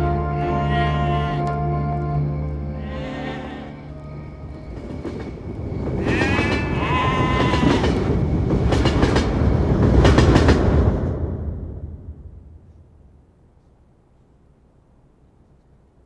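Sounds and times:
low rumbling: 0:03.7 - 0:15.1.

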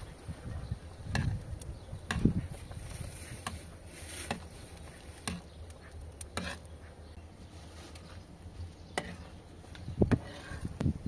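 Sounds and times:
metal ladle scraping pot: 0:02.0 - 0:06.9, 0:08.9 - 0:09.4, 0:10.0 - 0:10.8.

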